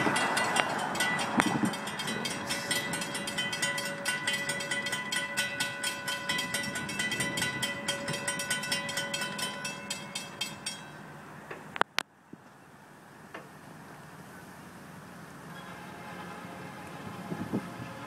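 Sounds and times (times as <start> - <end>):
railroad crossing bell ringing: 0.0 - 11.4, 15.5 - 18.0.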